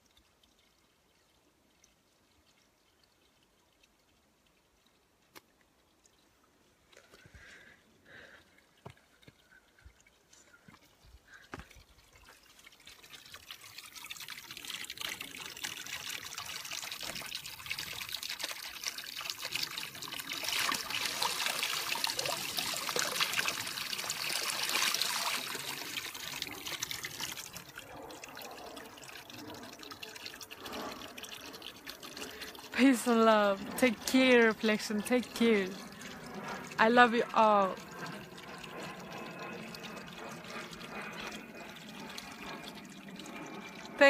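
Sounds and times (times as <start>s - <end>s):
water splashing onto stones: 10.9s - 27.8s.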